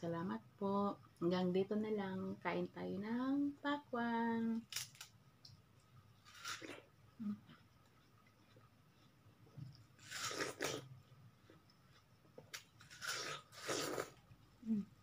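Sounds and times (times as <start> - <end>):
person biting watermelon: 9.7 - 10.9, 12.5 - 14.2.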